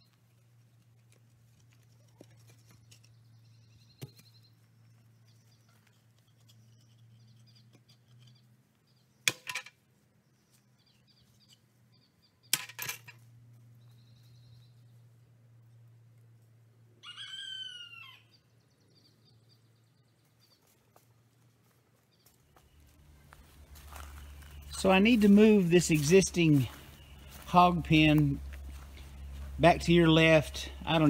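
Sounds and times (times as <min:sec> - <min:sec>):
metal fence posts clanking: 0:12.5 - 0:13.2.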